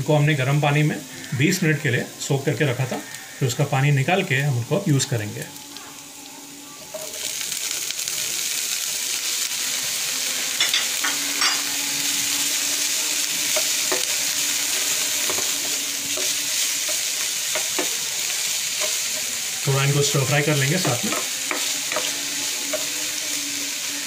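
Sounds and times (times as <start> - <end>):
food sizzling in hot oil: 0.0 - 24.0
spatula tapping and scraping: 20.8 - 22.9.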